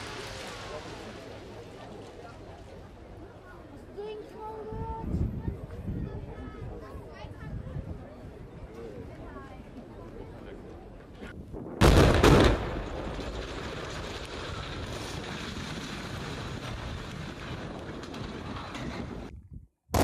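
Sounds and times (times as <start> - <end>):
demolition charges exploding: 0.0 - 1.9, 11.8 - 19.3
tower collapsing: 11.8 - 19.3.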